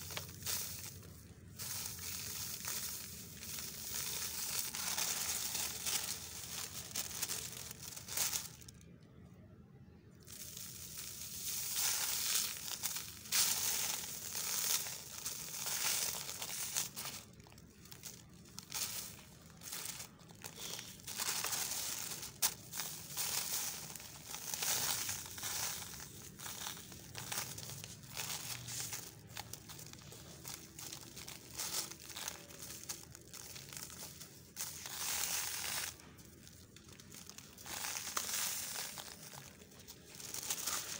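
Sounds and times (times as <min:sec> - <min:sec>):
dry sand mix trickling: 0:00.0 - 0:08.4
paper sheet crinkling: 0:00.0 - 0:08.7, 0:10.3 - 0:40.9.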